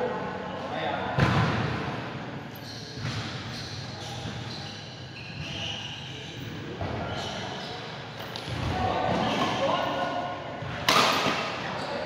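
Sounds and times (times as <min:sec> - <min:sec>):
background noise: 0:00.0 - 0:12.0
thuds and knocks in a hall: 0:01.1 - 0:02.2, 0:03.0 - 0:03.5.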